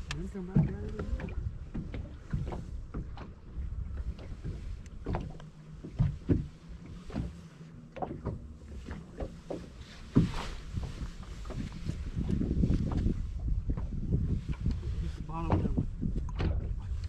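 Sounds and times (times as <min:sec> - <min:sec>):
water lapping against boat hull: 0:00.0 - 0:17.0
knocks on boat deck: 0:00.4 - 0:03.3, 0:15.4 - 0:16.8.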